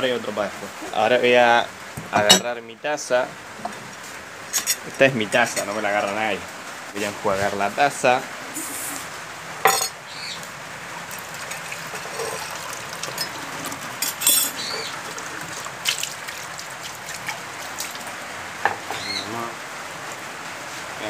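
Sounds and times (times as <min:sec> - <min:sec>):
mug clinking and knocking: 0:02.0 - 0:02.5, 0:09.7 - 0:10.0
tap water running into a mug: 0:11.0 - 0:18.1.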